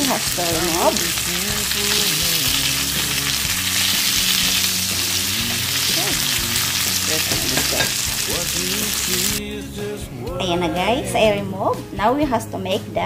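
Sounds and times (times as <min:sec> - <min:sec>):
fish sizzling in hot oil: 0:00.0 - 0:09.4
spatula moving in pan: 0:00.2 - 0:09.4.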